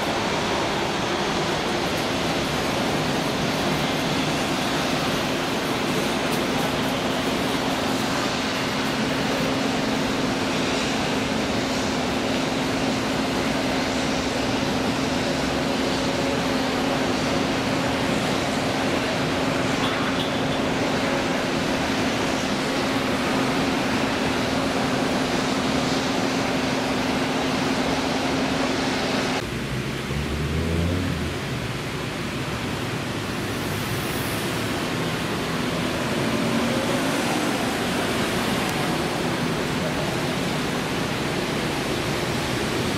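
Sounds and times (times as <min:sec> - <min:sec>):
jet engine rushing: 0:00.0 - 0:31.9.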